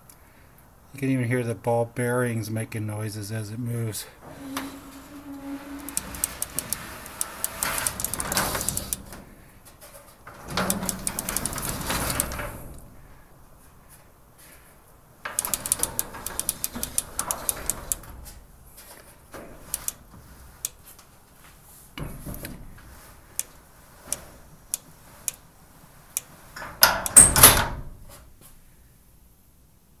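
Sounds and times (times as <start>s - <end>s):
garage door rolling and rumbling: 4.1s - 13.6s, 15.2s - 20.6s, 21.9s - 28.2s.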